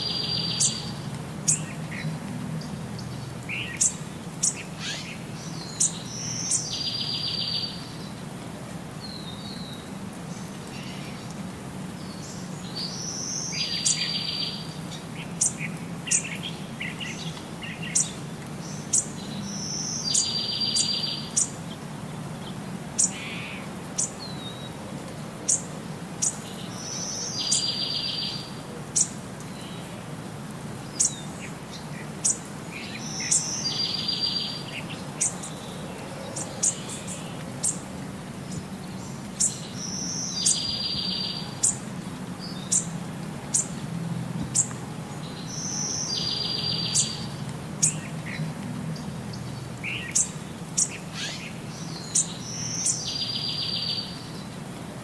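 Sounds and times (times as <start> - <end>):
bird chirping and trilling: 0.0 - 1.8, 3.5 - 7.8, 32.2 - 35.7, 39.4 - 41.8, 45.4 - 48.0, 49.8 - 54.2.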